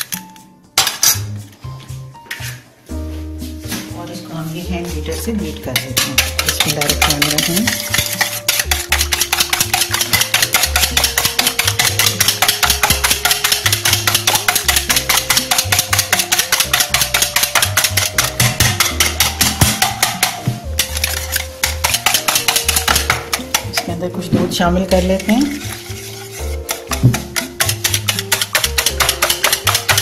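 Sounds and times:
background music: 0:00.0 - 0:30.0
whisk clicking against bowl: 0:05.7 - 0:24.0, 0:24.9 - 0:30.0.

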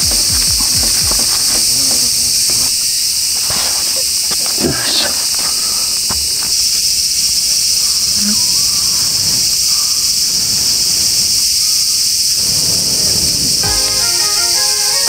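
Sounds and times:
shrill insect chorus: 0:00.0 - 0:15.0.

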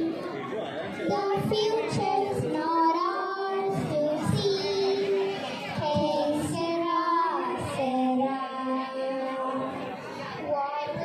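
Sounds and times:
girls singing into microphones: 0:00.0 - 0:11.0.

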